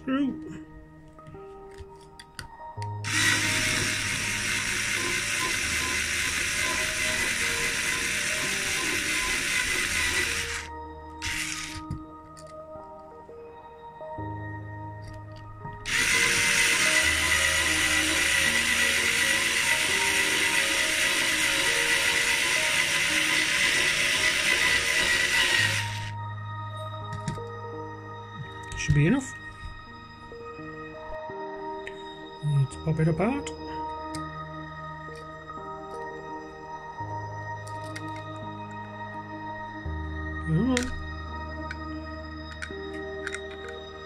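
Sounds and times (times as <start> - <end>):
cordless drill grinding metal: 3.0 - 12.0, 15.8 - 26.1.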